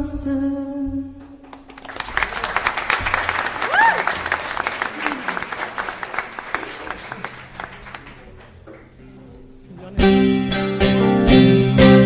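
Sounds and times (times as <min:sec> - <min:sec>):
hand clapping: 0:01.4 - 0:09.0
plucked lute strings: 0:08.6 - 0:12.0.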